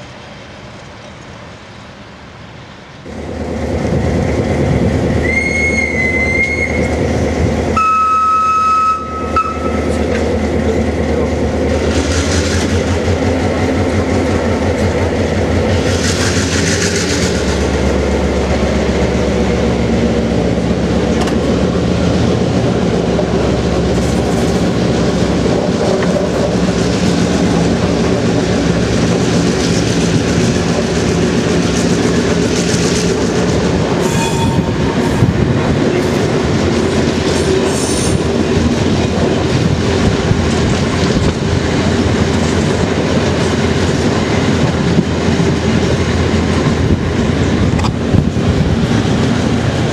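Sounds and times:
diesel locomotive running under load: 0.0s - 49.9s
locomotive horn blasts: 7.8s - 9.9s, 34.0s - 34.8s.

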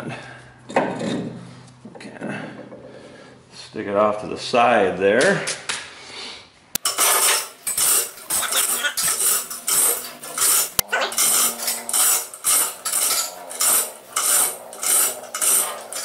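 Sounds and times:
hand tool rasping on metal: 6.8s - 16.0s.

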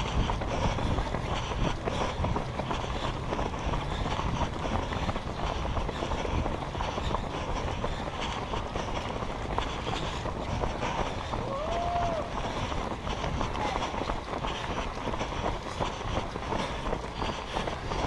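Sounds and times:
runners' footsteps: 0.0s - 18.0s
wind: 0.0s - 18.0s.

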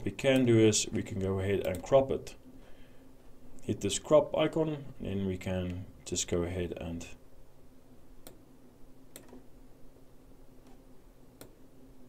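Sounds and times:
faint low hum: 0.0s - 12.0s
computer mouse clicks: 9.1s - 9.4s, 11.4s - 11.6s.

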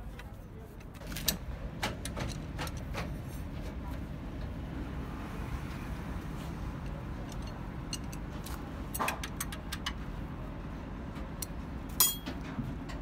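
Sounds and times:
metal clink with short ring: 12.0s - 12.3s.

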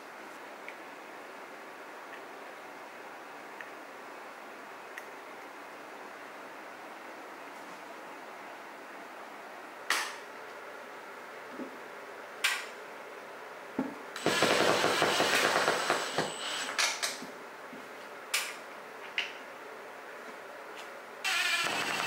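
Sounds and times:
impact driver hammering screw: 14.2s - 16.5s.

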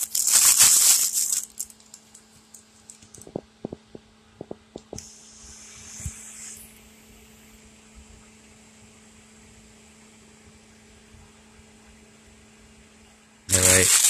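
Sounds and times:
plastic bag crinkling: 0.0s - 3.8s, 13.5s - 14.0s
computer cooling fan humming: 0.0s - 14.0s.

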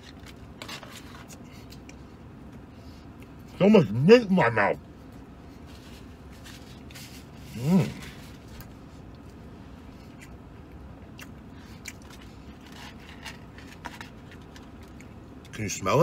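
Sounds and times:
man chewing food: 0.0s - 3.6s, 5.0s - 15.6s
man humming mmm: 7.4s - 8.2s.

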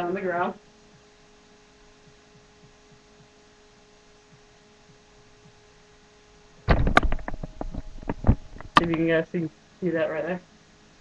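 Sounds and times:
faint electrical hum: 0.0s - 11.0s
webcam knocking and rustling: 6.6s - 9.1s.

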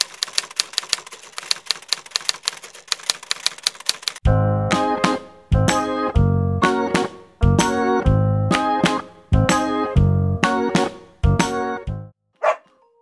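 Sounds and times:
typewriter keys clacking: 0.0s - 4.2s.

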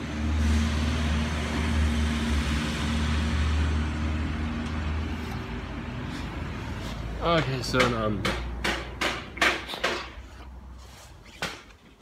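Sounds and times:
vehicle passing by: 0.0s - 7.7s.

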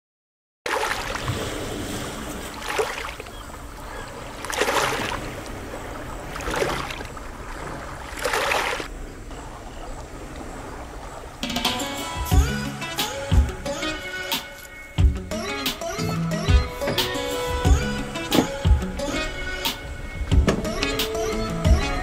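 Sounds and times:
waves washing over rocks: 0.7s - 15.1s.

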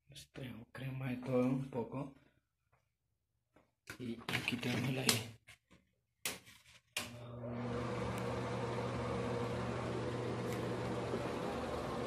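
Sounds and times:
electric fan whirring: 7.2s - 12.0s.

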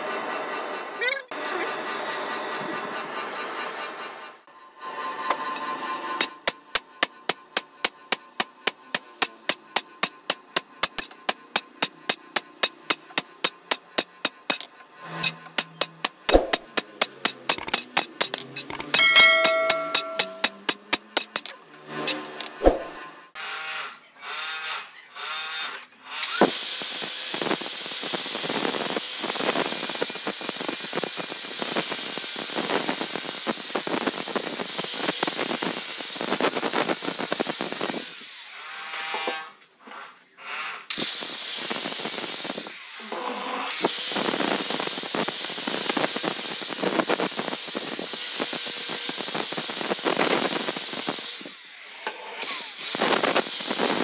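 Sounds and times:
angle grinder grinding metal: 4.8s - 26.5s, 45.9s - 54.0s.

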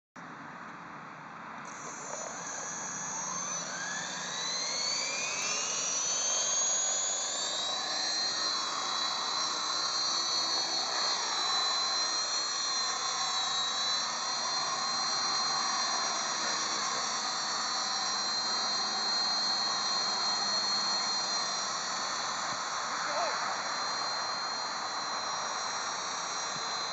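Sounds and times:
model helicopter whine: 1.1s - 26.9s.

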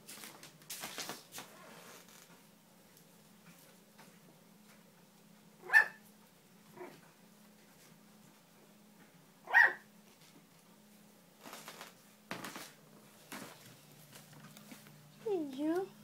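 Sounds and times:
puppy barking: 5.6s - 6.0s, 9.4s - 9.9s.

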